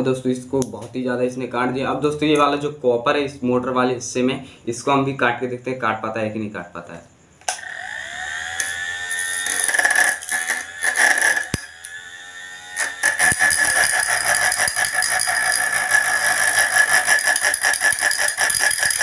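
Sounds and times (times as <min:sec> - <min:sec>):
angle grinder grinding metal: 0:07.5 - 0:19.0.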